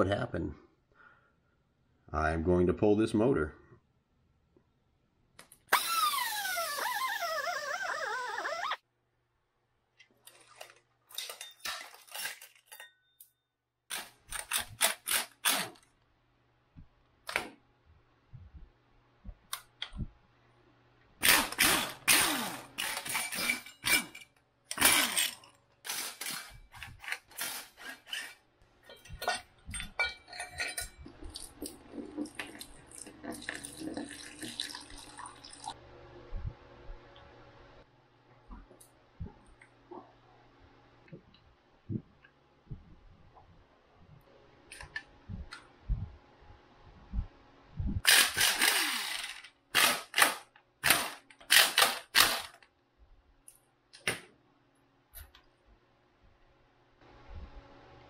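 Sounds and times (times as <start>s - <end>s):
cordless power tool bursts: 5.7s - 6.5s, 21.2s - 24.1s, 24.7s - 26.5s, 48.0s - 52.6s.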